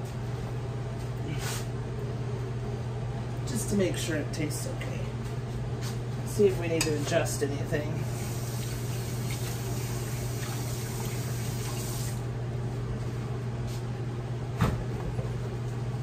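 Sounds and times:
low background hum: 0.0 - 16.0
water running from faucet: 8.0 - 12.2.

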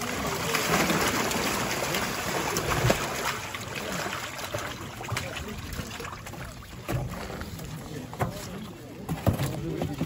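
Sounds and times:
fish splashing into water: 0.0 - 7.6
water pouring from plastic tub: 0.0 - 7.8.

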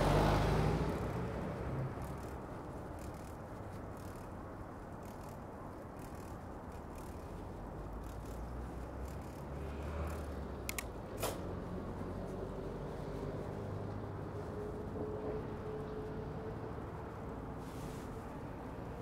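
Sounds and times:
traffic rumble: 0.0 - 19.0
sharp mechanical clicks: 1.9 - 11.5.

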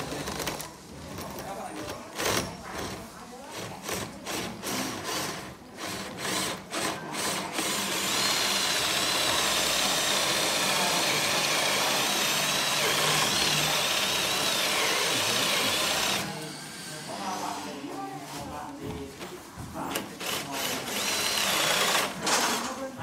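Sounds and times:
cordless drill boring into wood: 3.9 - 16.9, 20.2 - 22.6.

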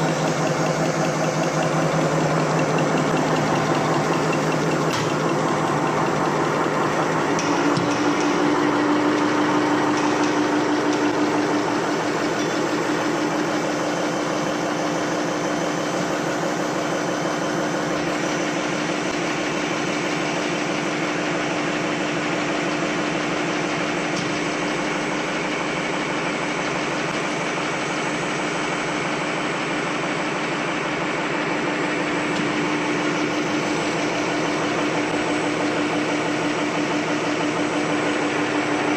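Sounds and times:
machine mechanical clatter: 0.0 - 27.8.

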